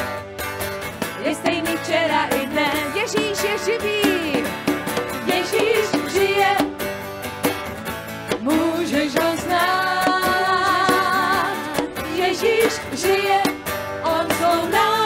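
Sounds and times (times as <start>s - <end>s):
band accompaniment: 0.0s - 15.0s
person singing: 8.4s - 15.0s.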